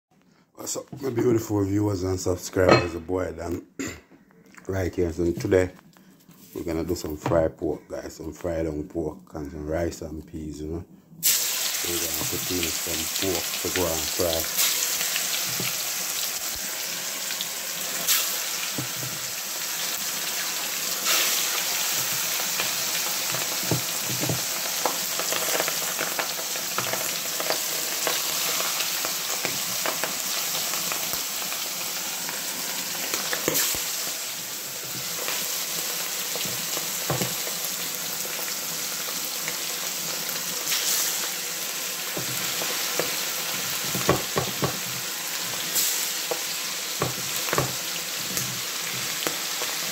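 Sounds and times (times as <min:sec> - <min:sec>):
meat sizzling in oil: 0:11.2 - 0:49.9.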